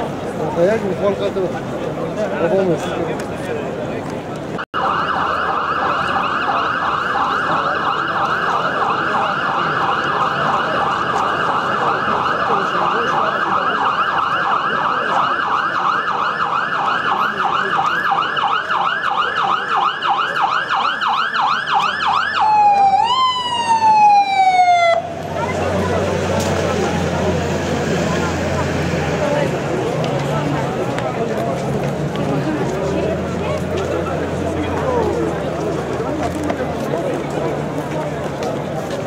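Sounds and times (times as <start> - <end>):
emergency siren yelping: 4.7 - 26.3.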